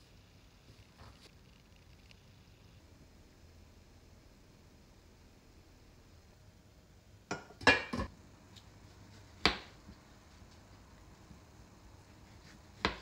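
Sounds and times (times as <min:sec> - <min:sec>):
glass pot lids clinking: 0:07.3 - 0:08.1.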